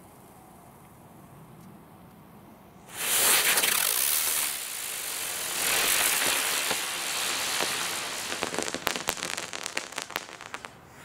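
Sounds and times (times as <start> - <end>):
firework crackles: 2.9 - 11.0
firework hissing: 2.9 - 11.0.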